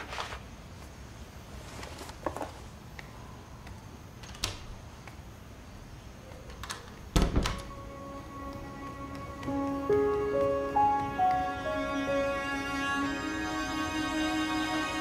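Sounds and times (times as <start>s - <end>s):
soft held music notes: 5.8s - 15.0s.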